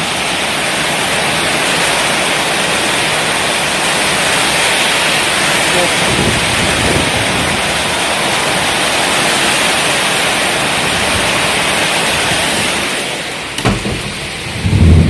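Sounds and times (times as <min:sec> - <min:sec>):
heavy rain pouring: 0:00.0 - 0:15.0
loud low thump: 0:13.6 - 0:15.0.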